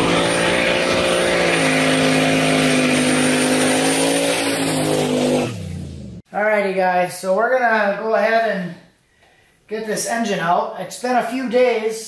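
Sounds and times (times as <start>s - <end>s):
spinning tyres hissing: 0.0s - 6.2s
truck engine revving high: 0.0s - 6.2s.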